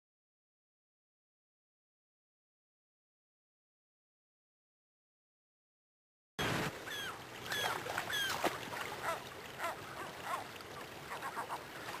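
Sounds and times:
gulls calling: 6.4s - 12.0s
river water rushing: 6.4s - 12.0s.

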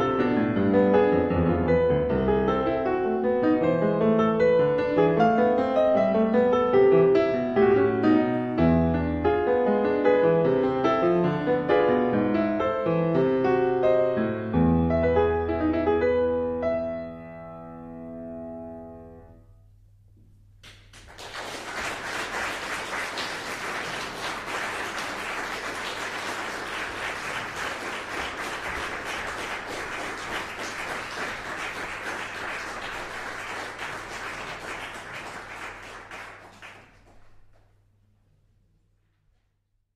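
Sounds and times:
audience applause: 20.7s - 37.4s.

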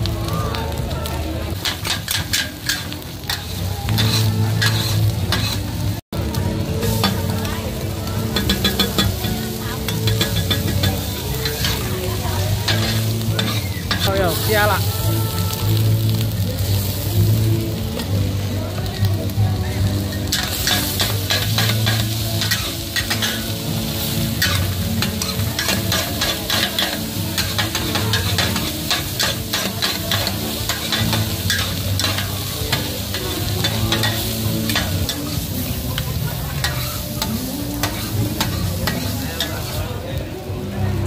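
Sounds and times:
food sizzling: 0.0s - 41.0s
metal spatula scraping pan: 1.6s - 5.7s, 8.3s - 11.9s.

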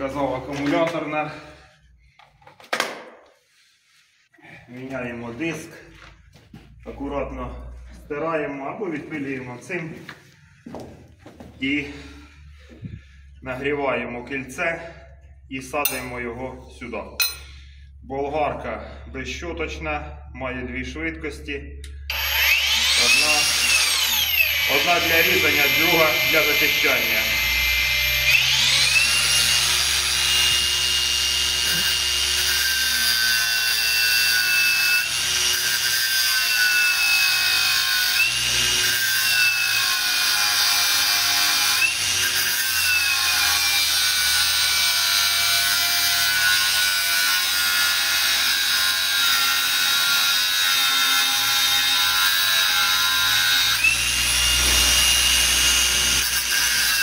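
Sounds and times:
angle grinder cutting steel: 15.8s - 16.2s, 21.8s - 57.0s.

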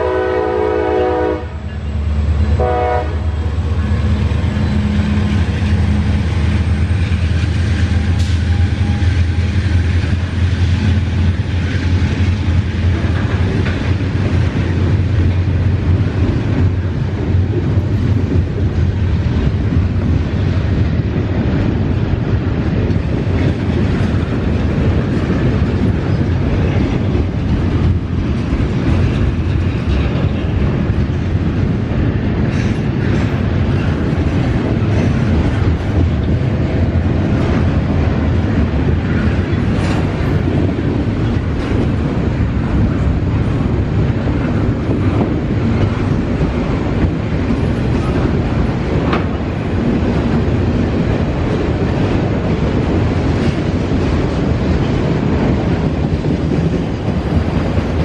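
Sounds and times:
diesel locomotive engine hum: 0.0s - 58.0s
freight train rumbling: 0.0s - 58.0s
wheels clicking over rail joints: 3.8s - 58.0s.

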